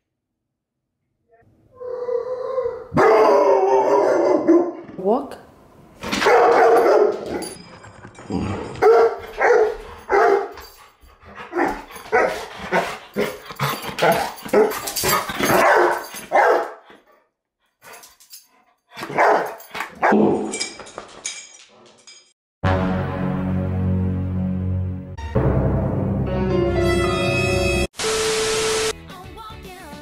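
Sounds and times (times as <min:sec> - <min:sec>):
dog barking: 0:02.9 - 0:04.8, 0:06.2 - 0:07.5, 0:08.8 - 0:10.6, 0:11.5 - 0:13.0, 0:14.0 - 0:16.8, 0:19.0 - 0:20.4.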